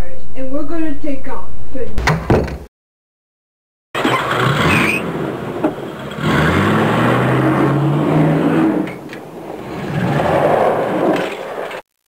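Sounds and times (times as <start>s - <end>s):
mouth-made airplane engine drone: 4.0s - 11.2s.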